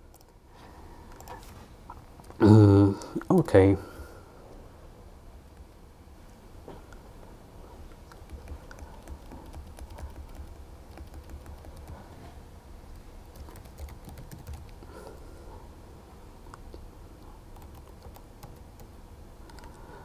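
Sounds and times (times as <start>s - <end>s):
laptop keyboard typing: 0.0s - 0.3s, 1.1s - 1.4s, 8.0s - 12.2s, 13.2s - 15.1s, 17.2s - 19.8s
steady low hum: 0.0s - 20.0s.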